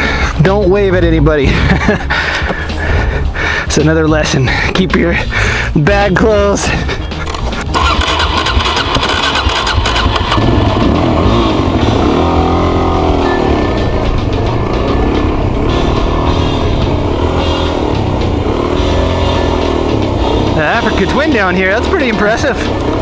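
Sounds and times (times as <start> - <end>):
motorcycle engine revving: 6.9 - 23.0.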